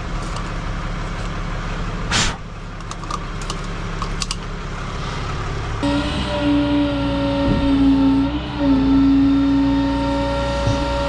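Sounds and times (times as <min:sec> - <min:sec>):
steady humming drone: 0:00.0 - 0:11.0
vehicle engine rumble: 0:00.0 - 0:11.0
short hiss: 0:02.1 - 0:02.4.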